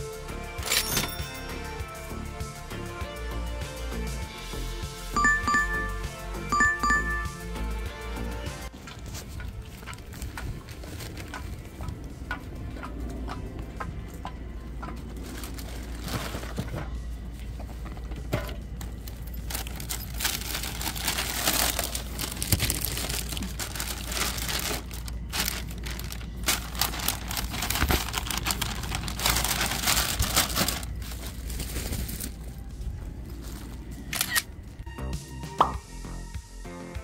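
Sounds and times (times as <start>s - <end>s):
plastic bag crinkling: 15.2s - 16.8s, 18.8s - 32.7s.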